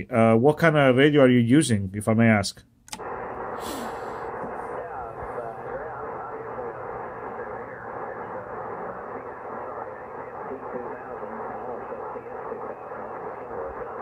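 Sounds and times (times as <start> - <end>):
radio band hiss: 3.0 - 14.0
radio voice through speaker: 3.1 - 14.0.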